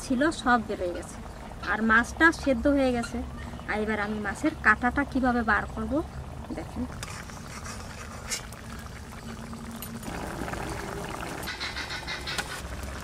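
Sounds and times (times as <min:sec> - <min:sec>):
fish simmering and bubbling: 0:04.9 - 0:13.0.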